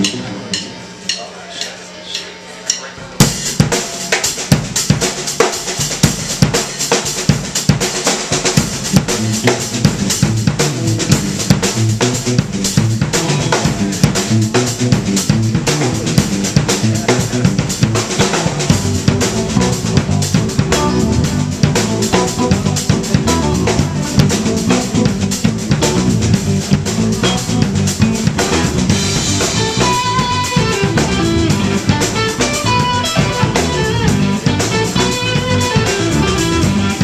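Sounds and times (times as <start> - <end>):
bass guitar line: 0.0 - 1.2, 2.9 - 37.0
drum kit: 0.0 - 37.0
electric guitar: 8.6 - 37.0.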